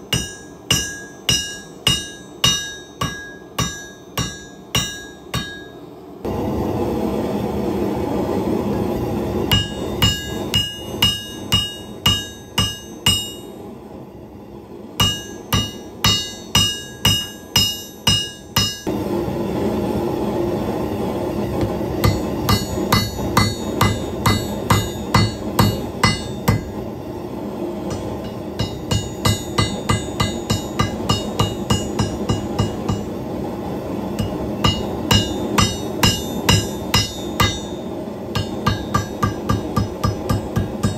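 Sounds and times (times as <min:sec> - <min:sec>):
hammer blows ringing on steel: 0:00.0 - 0:05.8, 0:09.5 - 0:13.6, 0:15.0 - 0:18.9, 0:22.0 - 0:26.8, 0:27.9 - 0:33.2, 0:34.1 - 0:40.9.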